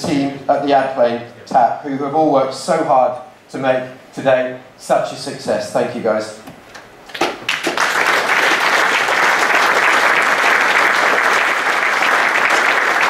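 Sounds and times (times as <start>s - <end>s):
audience applauding: 7.1s - 13.0s.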